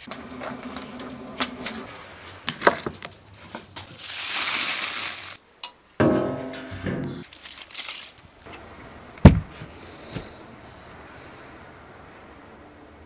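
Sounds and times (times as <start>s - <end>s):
twigs crackling in a fire: 0.0s - 6.0s, 7.2s - 8.7s
foil and paper crinkling: 3.9s - 5.4s, 7.2s - 8.5s.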